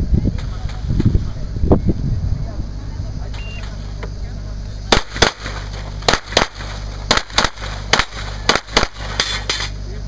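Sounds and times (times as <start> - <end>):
pistol shots: 4.9 - 9.7.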